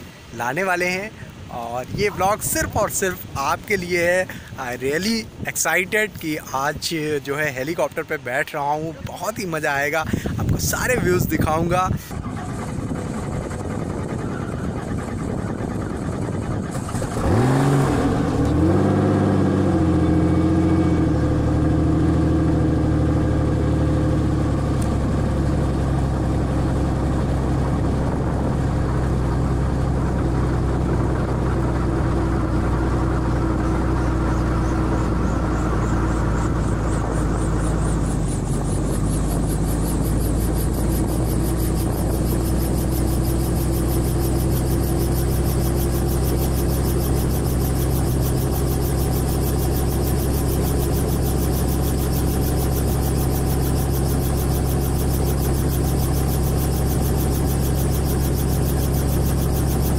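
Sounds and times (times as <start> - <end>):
helicopter engine starting: 9.6 - 59.9.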